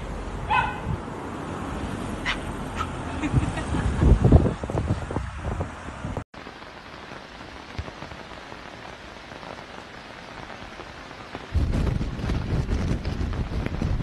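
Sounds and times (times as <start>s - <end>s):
rain falling on leaves: 6.4s - 14.0s.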